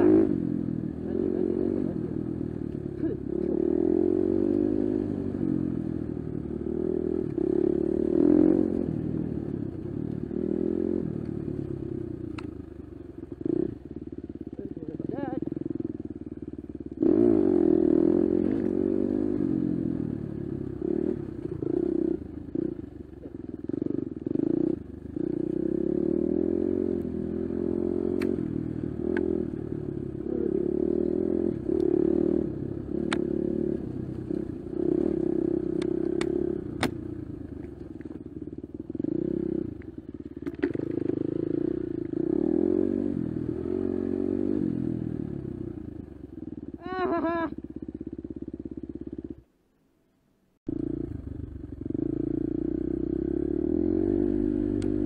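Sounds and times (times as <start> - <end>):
dirt bike engine revving: 0.0 - 2.4, 3.0 - 5.8, 6.4 - 9.5, 16.9 - 22.9, 23.7 - 37.2, 38.9 - 45.8, 50.7 - 55.0.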